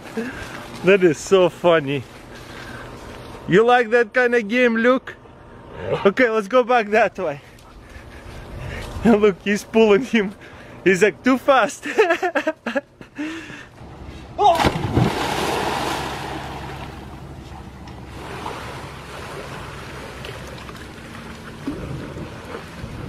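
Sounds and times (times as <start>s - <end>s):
loud splash into pool: 14.4s - 17.0s
water sloshing: 14.5s - 23.0s.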